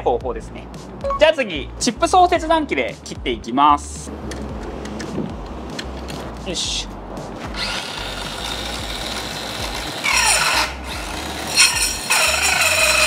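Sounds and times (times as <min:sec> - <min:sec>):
saw blade whining: 0:07.6 - 0:13.0
saw cutting metal rod: 0:07.6 - 0:13.0.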